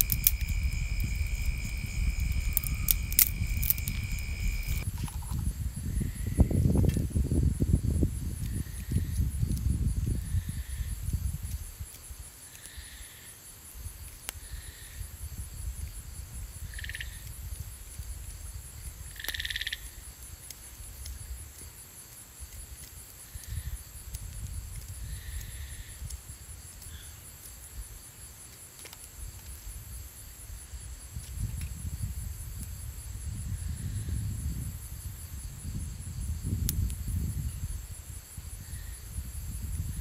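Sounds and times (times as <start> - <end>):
low rumble: 0.0 - 4.9
insects chirring: 0.0 - 40.0.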